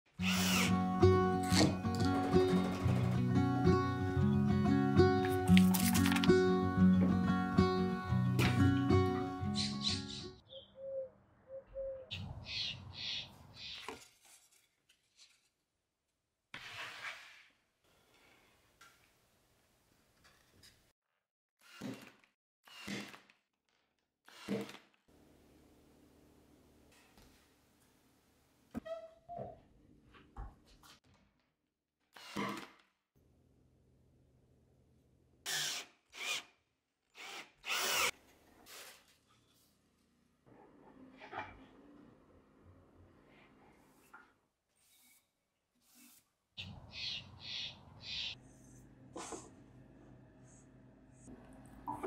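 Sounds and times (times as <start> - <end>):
cordless drill driving screws: 0.2 - 0.7, 35.5 - 36.5, 37.2 - 38.2
outdoor noise: 8.1 - 15.1, 40.0 - 52.0.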